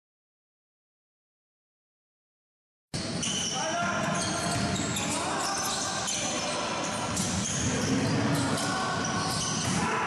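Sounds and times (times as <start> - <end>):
short high squeals: 3.0 - 9.8
sneakers squeaking: 3.0 - 10.0.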